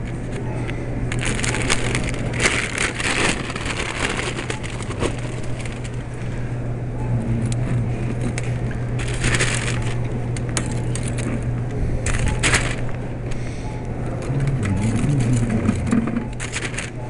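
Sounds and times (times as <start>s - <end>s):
steady low hum: 0.0s - 17.0s
crackling rustle: 1.1s - 6.4s, 7.4s - 13.0s, 14.2s - 17.0s
scattered clicks: 14.2s - 17.0s.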